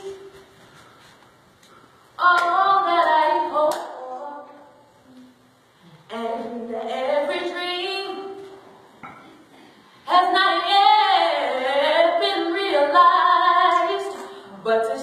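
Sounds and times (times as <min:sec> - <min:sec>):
women singing gospel song: 0:02.2 - 0:04.9, 0:06.1 - 0:08.6, 0:10.0 - 0:15.0.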